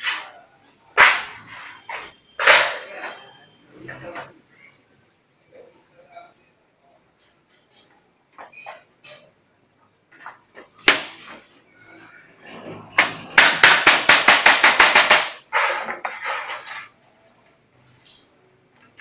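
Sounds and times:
hammer striking sheet metal: 1.0 - 3.2, 10.8 - 11.4, 13.0 - 16.7.

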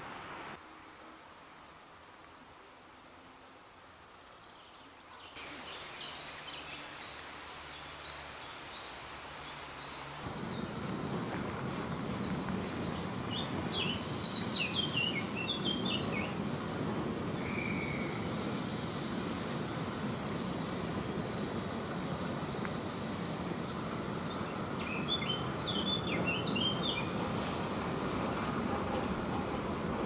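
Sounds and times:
steady background noise: 0.0 - 30.0
birds singing: 11.7 - 16.4, 23.6 - 27.4.

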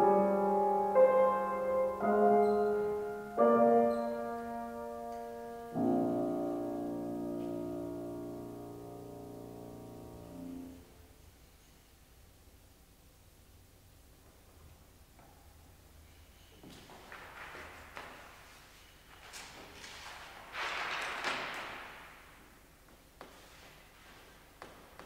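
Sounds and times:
grand piano chords: 0.0 - 11.4.

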